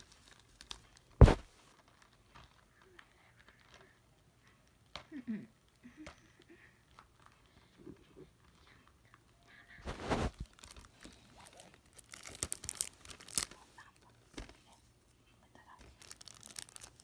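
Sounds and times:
plastic wrap ripping: 0:00.0 - 0:05.8, 0:09.8 - 0:14.6, 0:15.7 - 0:17.0
plastic shrink-wrap crinkling: 0:00.0 - 0:17.0.

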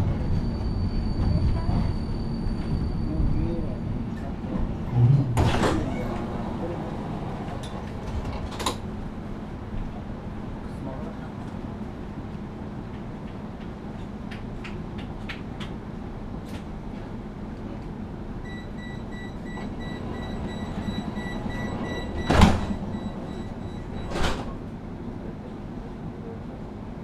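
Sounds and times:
tram door warning beeps: 0:00.0 - 0:03.3, 0:18.4 - 0:24.6
tram low hum: 0:00.0 - 0:27.0.

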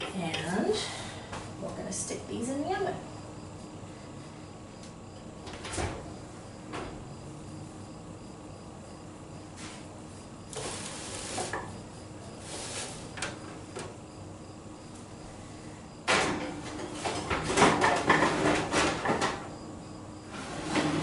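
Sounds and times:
oven rack and baking sheet clattering: 0:16.1 - 0:19.5, 0:20.3 - 0:21.0.

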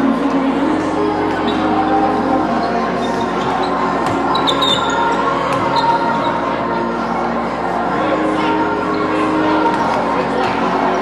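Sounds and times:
background music: 0:00.0 - 0:11.0
sneakers squeaking on gym floor: 0:01.4 - 0:06.5.

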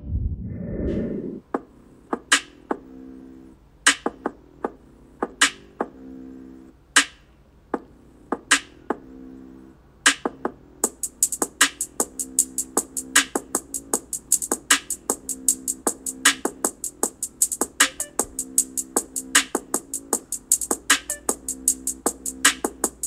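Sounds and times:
drum-machine hits: 0:10.1 - 0:23.0
hi-hat ticks: 0:10.1 - 0:23.0.

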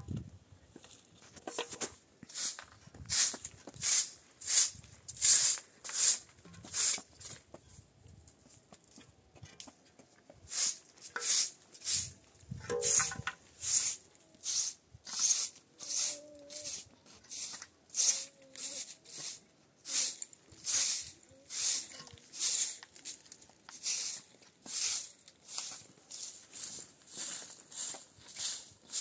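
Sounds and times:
broom sweeping concrete floor: 0:01.4 - 0:07.4, 0:10.4 - 0:29.0.

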